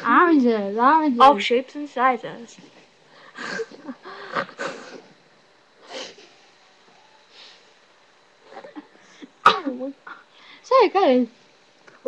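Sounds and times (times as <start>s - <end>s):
girl wheezing and sniffing: 3.1s - 5.2s, 5.8s - 6.4s.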